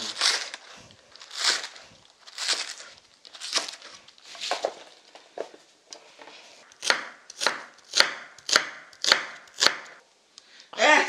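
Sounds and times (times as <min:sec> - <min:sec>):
knife chopping on wooden board: 0:06.8 - 0:09.9.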